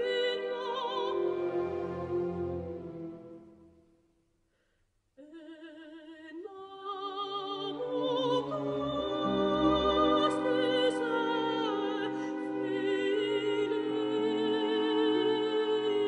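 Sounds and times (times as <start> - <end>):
soprano singing with vibrato: 0.0 - 2.1, 5.2 - 16.0
orchestra with flute and clarinets: 0.2 - 3.8.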